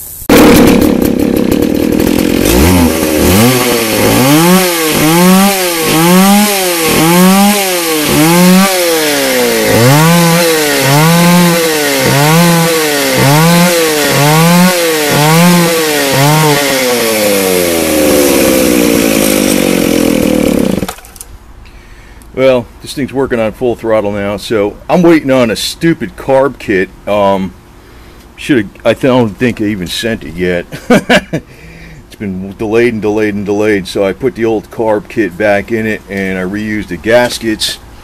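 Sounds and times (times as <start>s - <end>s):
chainsaw revving: 0.3s - 21.2s.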